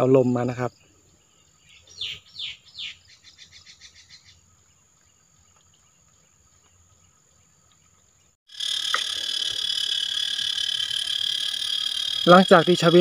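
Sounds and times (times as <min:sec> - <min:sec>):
high-pitched insect drone: 0:08.5 - 0:13.0.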